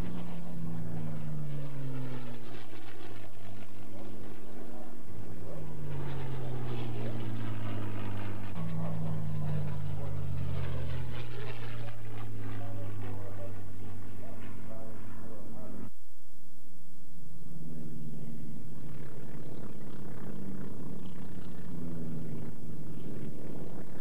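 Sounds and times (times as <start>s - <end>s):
propeller plane engines droning past: 0.0s - 24.0s.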